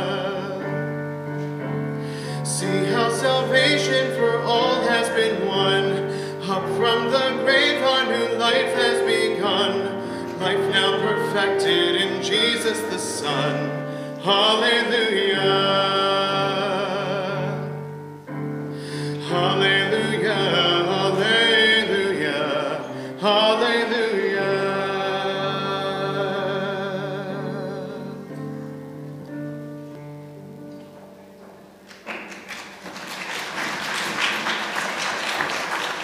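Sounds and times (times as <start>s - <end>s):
man singing a hymn: 0.0s - 1.4s, 2.2s - 18.0s, 18.8s - 28.7s
applause: 31.9s - 36.0s.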